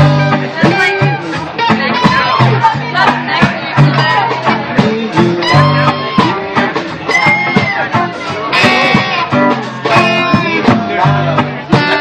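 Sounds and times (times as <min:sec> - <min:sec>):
bending guitar notes: 0:00.0 - 0:12.0
drum kit: 0:00.0 - 0:12.0
live band playing: 0:00.0 - 0:12.0.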